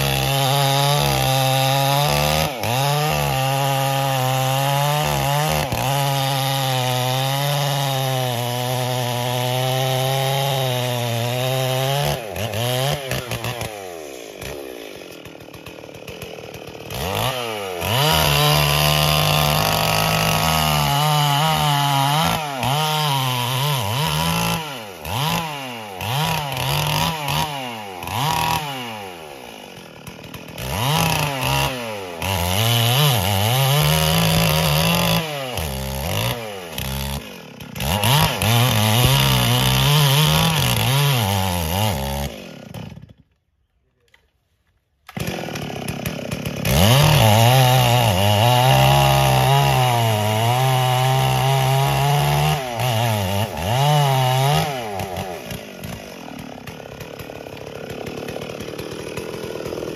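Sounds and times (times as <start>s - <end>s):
chainsaw cutting wood: 0.0s - 59.9s.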